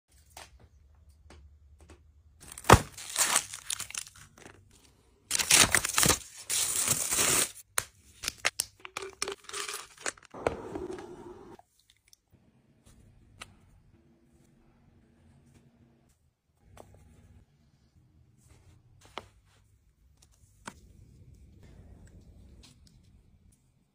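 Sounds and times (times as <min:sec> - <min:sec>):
foil wrapping tearing and crinkling: 0:02.4 - 0:04.6, 0:05.3 - 0:07.6.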